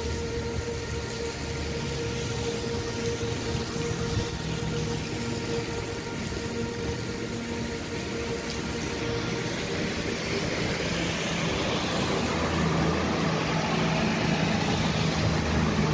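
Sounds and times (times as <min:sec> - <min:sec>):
heavy rain on road: 0:00.0 - 0:15.9
vehicle engine approaching: 0:00.2 - 0:15.9.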